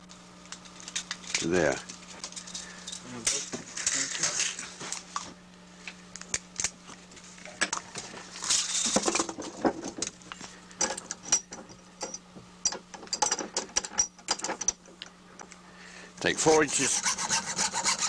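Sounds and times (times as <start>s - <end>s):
scraping rub: 16.4s - 18.0s.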